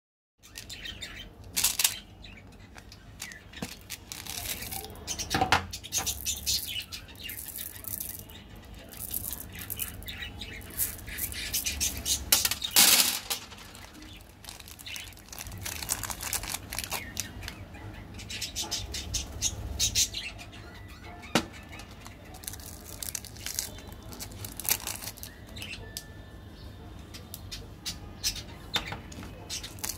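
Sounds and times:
candies clicking: 1.5s - 2.0s, 2.8s - 4.8s, 12.3s - 17.6s, 22.0s - 25.3s
candy wrappers crinkling: 1.5s - 2.0s, 2.6s - 5.2s, 6.0s - 17.6s, 21.7s - 25.8s, 29.5s - 29.9s.

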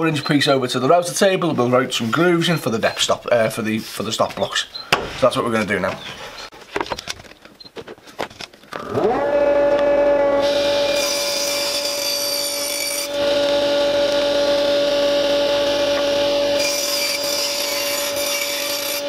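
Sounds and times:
saw blade whining: 8.7s - 19.0s
table saw cutting plywood: 8.8s - 19.0s.

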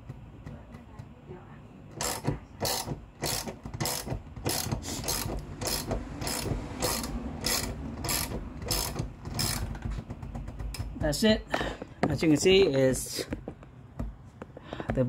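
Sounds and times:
ratchet wrench clicking: 2.0s - 9.8s.

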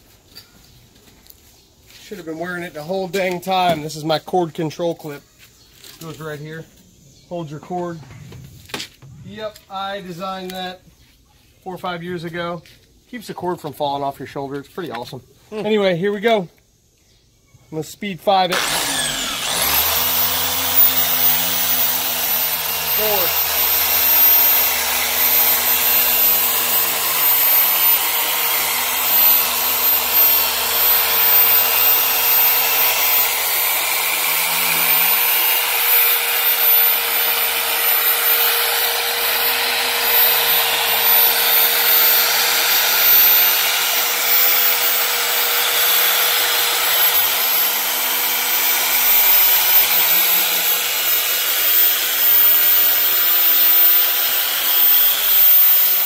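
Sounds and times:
electric polisher motor whine: 18.5s - 56.0s.

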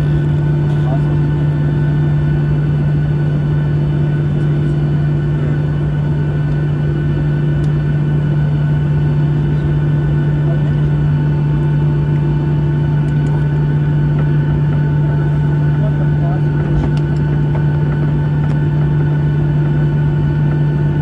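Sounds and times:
airplane cabin drone: 0.0s - 21.0s
faint jet engine whine: 0.0s - 21.0s.

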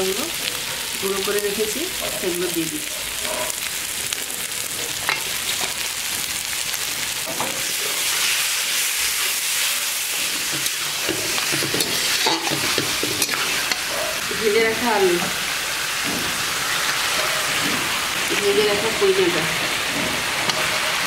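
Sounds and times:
spices sizzling in hot oil: 0.0s - 21.0s
spatula scraping a pan: 7.3s - 14.3s, 15.8s - 19.0s, 19.6s - 21.0s.

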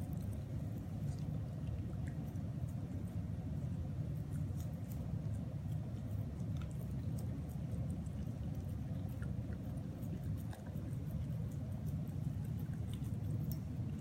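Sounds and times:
puppy licking and mouthing: 0.0s - 14.0s
steady low rumble: 0.0s - 14.0s.

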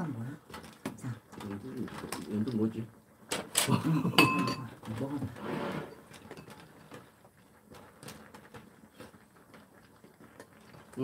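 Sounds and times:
clams popping in boiling broth: 0.0s - 5.1s.

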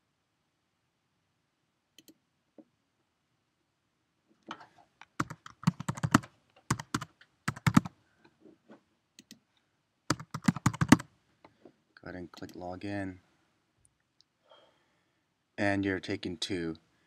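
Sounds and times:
faint clicks: 2.0s - 2.2s, 9.2s - 9.4s
keyboard typing: 5.0s - 7.9s, 10.1s - 11.1s.

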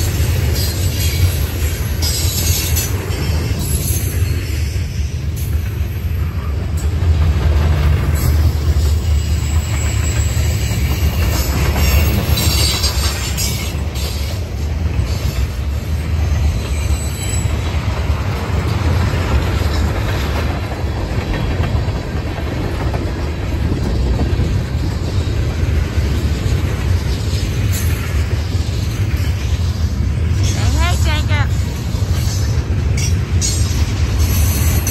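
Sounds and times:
train wheels rumbling on rail: 0.0s - 34.9s
high wheel squeal: 8.4s - 14.4s, 16.3s - 17.7s.

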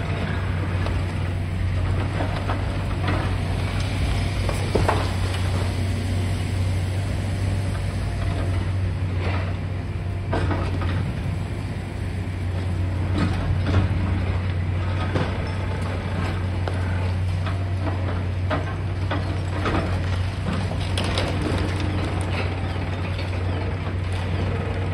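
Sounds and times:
excavator engine running: 0.0s - 24.9s.

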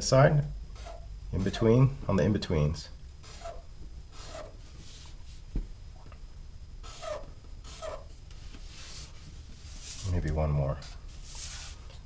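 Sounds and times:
marker scratching on paper: 0.8s - 1.6s, 3.2s - 5.1s, 6.8s - 9.1s, 10.8s - 11.8s.

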